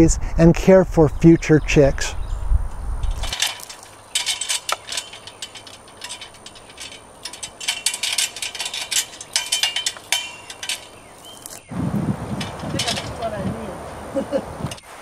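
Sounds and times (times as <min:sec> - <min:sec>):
metallic clicks of climbing gear: 0:03.0 - 0:11.7, 0:12.3 - 0:13.7, 0:14.6 - 0:14.9
metal ladder clinking: 0:03.0 - 0:15.0.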